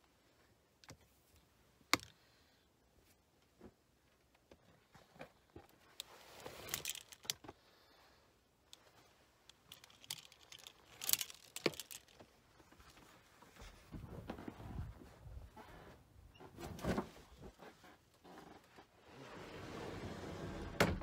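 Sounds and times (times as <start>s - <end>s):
handling clicks and rustling: 3.0s - 7.6s, 8.6s - 14.6s.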